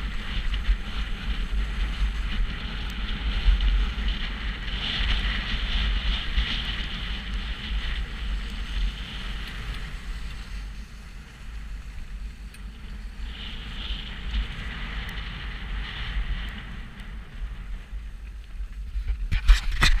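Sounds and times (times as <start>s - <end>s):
wind rumbling on microphone: 0.0s - 20.0s
sharp clicks and scrapes: 18.2s - 20.0s.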